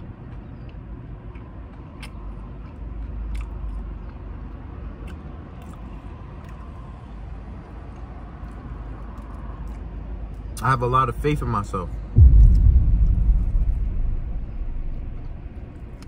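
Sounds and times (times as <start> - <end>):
person chewing food: 0.3 - 6.6.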